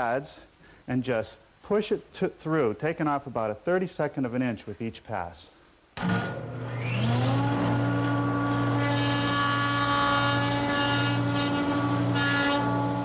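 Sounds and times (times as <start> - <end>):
jointer motor whining: 6.0 - 13.0.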